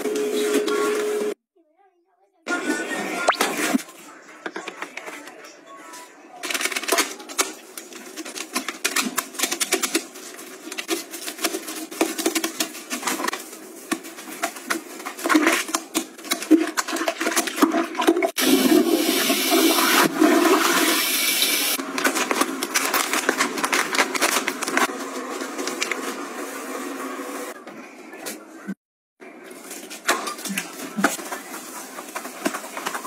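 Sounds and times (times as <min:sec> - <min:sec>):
toilet brush scrubbing: 0:08.0 - 0:27.6
toilet flushing: 0:16.5 - 0:21.8.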